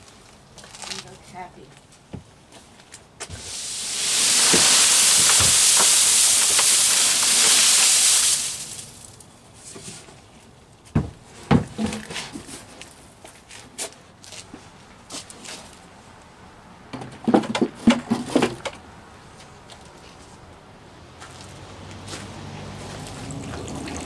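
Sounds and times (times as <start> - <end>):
dry leaves rustling into a bin: 3.3 - 9.7
container knocking against bin: 4.1 - 7.9.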